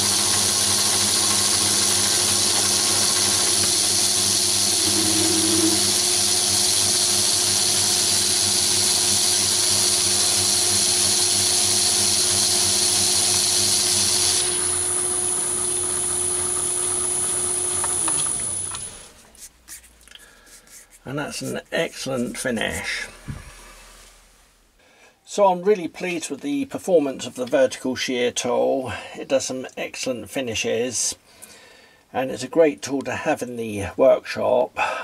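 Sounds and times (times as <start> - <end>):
lathe motor hum: 0.0 - 19.1
high cutting hiss: 4.1 - 7.0.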